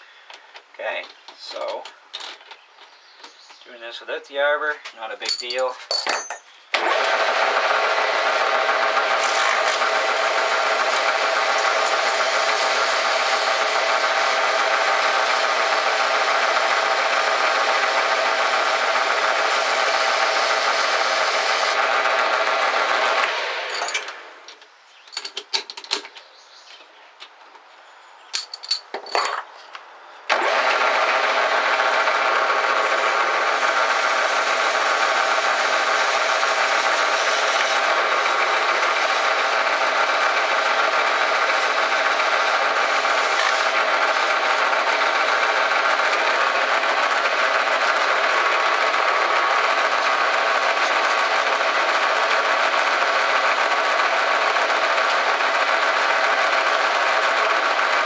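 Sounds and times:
clicks and knocks: 23.8s - 26.3s, 28.3s - 29.8s
metal lathe whining: 32.2s - 58.0s.

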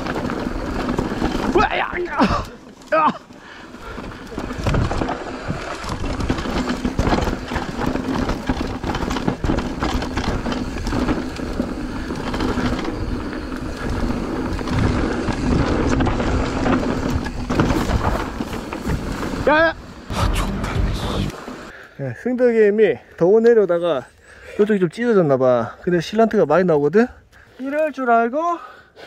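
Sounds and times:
bike tyres rushing over trail: 0.0s - 21.7s
steady hum: 20.0s - 21.7s.

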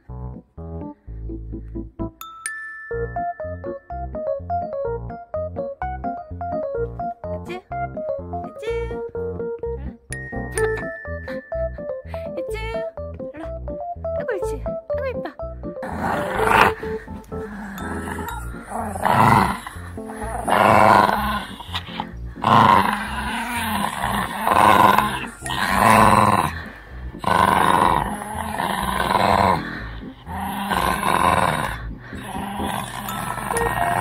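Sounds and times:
puppy growling: 15.8s - 34.0s.

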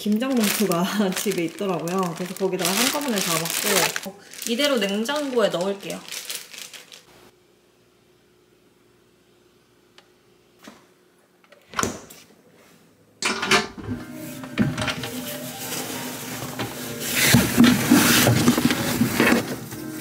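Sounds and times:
rustling clattering handling noise: 0.0s - 7.0s, 14.4s - 20.0s.

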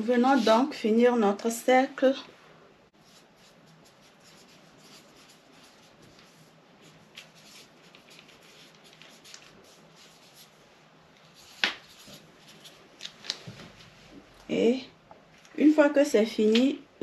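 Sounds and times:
pencil strokes on paper: 0.1s - 0.8s, 2.9s - 10.6s, 11.2s - 12.8s.

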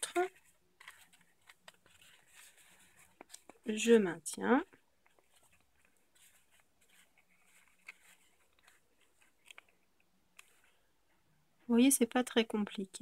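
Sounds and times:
paper rustling and crackling: 0.0s - 10.8s.

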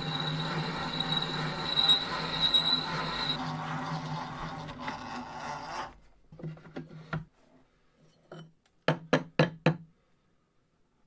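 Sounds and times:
hand drill cutting steel: 0.0s - 6.0s.

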